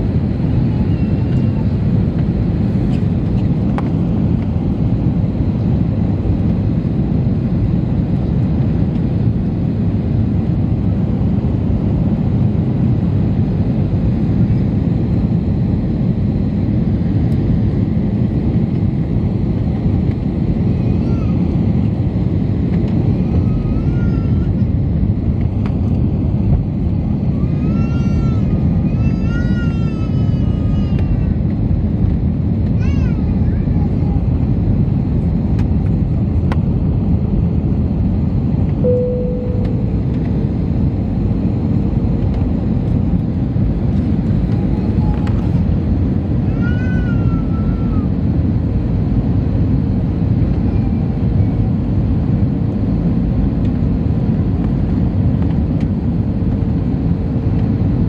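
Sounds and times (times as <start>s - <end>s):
jet engine cabin rumble: 0.0s - 58.0s
child calling out: 46.5s - 48.1s.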